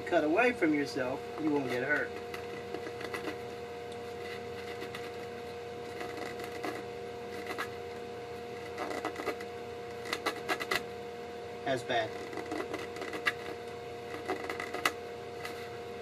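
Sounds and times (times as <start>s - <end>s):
electric fan humming: 0.0s - 16.0s
knife scraping plastic tube edge: 5.9s - 7.7s, 8.6s - 10.8s, 12.2s - 15.7s.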